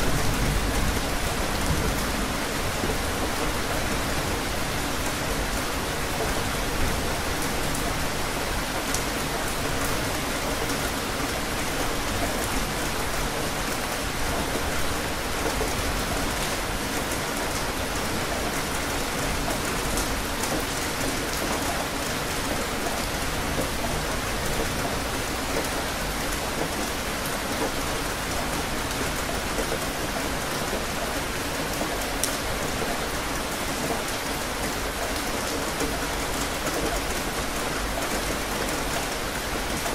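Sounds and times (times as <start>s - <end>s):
steady rain hiss: 0.0s - 39.9s.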